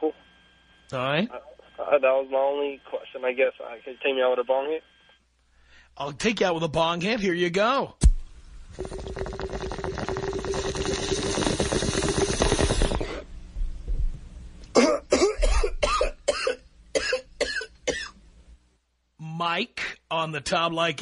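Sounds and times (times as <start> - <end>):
water bubbling in a bong: 8.7 - 13.2
person coughing: 14.7 - 18.2.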